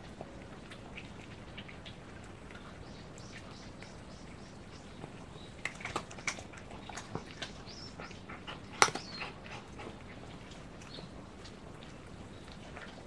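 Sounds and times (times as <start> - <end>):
cat crunching dry kibble: 5.6 - 7.6.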